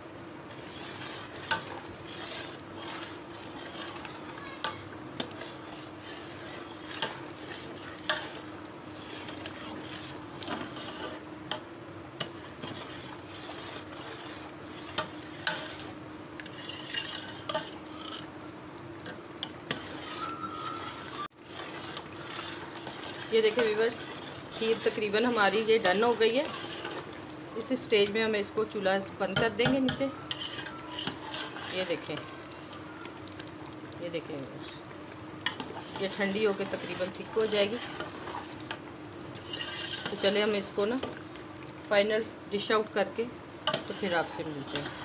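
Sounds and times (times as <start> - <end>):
metal spoon scraping pot: 0.5 - 11.2, 12.6 - 18.3, 19.4 - 27.1, 29.3 - 32.8, 35.4 - 38.8, 39.4 - 41.1, 43.7 - 45.0.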